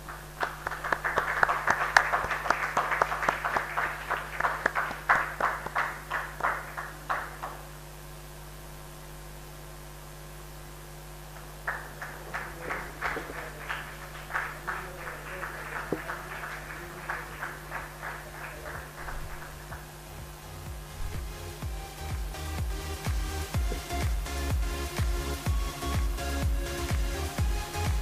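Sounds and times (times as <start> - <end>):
small audience applauding: 0.0 - 7.8, 11.3 - 28.0
low electrical hum: 0.0 - 28.0.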